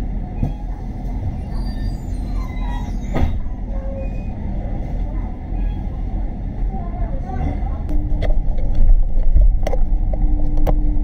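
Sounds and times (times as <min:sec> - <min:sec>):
bus road rumble: 0:00.0 - 0:11.0
faint squeaks: 0:00.4 - 0:04.5.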